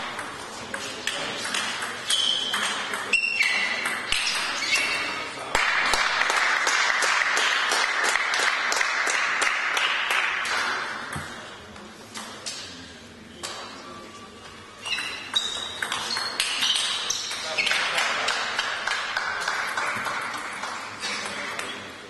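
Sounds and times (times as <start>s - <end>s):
ball bouncing: 0.0s - 4.9s, 11.1s - 11.4s, 14.9s - 21.8s
ping-pong ball clicks: 0.0s - 4.9s, 14.8s - 21.8s
spectators clapping: 5.6s - 10.8s, 18.0s - 21.0s.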